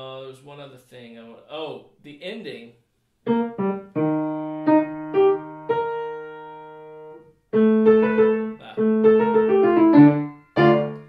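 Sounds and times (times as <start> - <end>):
grand piano playing: 3.3 - 11.0.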